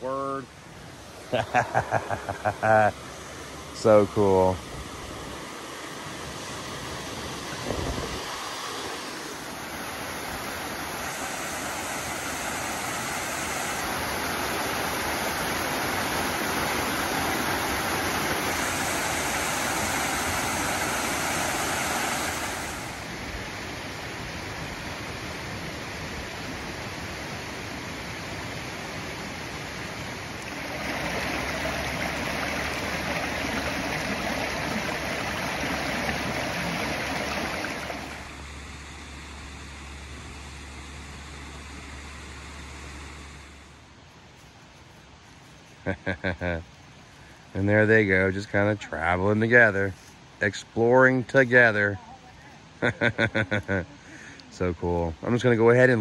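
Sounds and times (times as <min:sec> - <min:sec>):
creek running over rocks: 0:00.0 - 0:38.8, 0:43.6 - 0:56.0
waterfall over stone dam: 0:08.3 - 0:27.6, 0:29.8 - 0:38.2.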